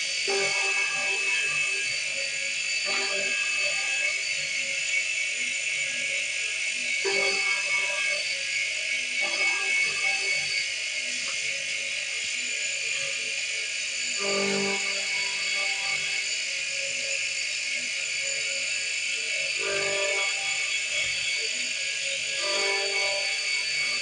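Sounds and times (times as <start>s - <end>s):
electric drill whining: 0.0s - 24.0s.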